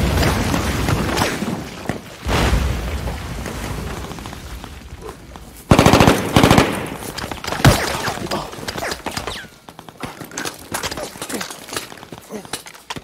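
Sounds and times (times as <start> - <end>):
automatic gunfire: 5.7 - 7.0.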